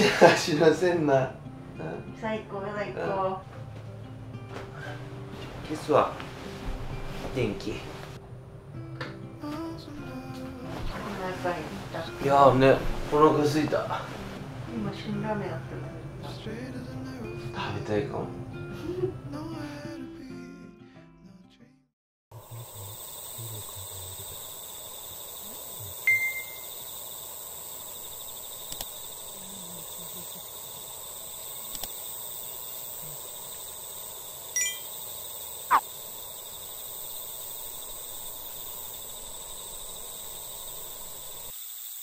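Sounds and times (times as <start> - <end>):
insects trilling: 22.3 - 42.0
high ringing notes: 26.0 - 26.7, 34.6 - 34.9.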